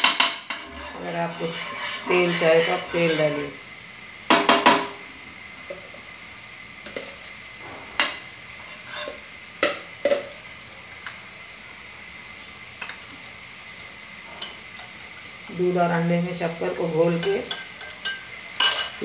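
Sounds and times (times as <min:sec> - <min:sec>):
metal spoon tapping frying pan: 0:00.0 - 0:00.7, 0:04.3 - 0:05.0, 0:17.1 - 0:19.0.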